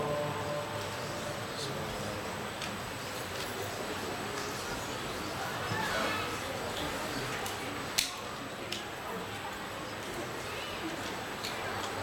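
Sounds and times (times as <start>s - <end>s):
man chanting: 0.0s - 1.8s
prayer hall noise: 0.0s - 12.0s.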